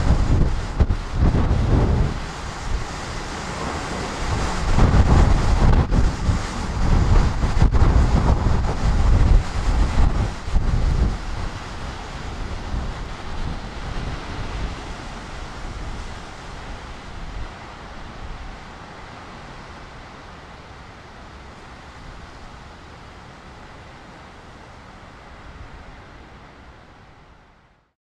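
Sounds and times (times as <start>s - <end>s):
wind buffeting on microphone: 0.0s - 19.3s
wind gusting through trees: 0.0s - 28.0s.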